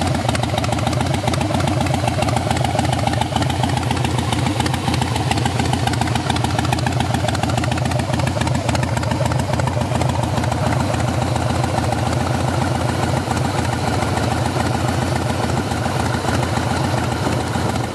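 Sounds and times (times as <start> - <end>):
motorcycle engine idling: 0.0 - 17.9.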